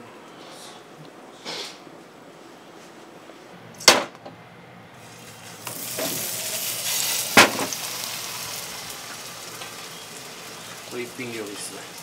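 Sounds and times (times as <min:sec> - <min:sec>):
patty sizzling in frying pan: 0:05.0 - 0:12.0.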